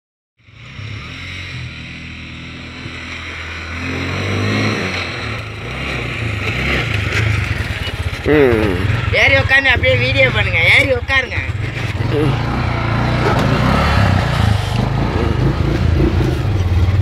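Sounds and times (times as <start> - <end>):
auto-rickshaw engine running: 0.4 - 17.0.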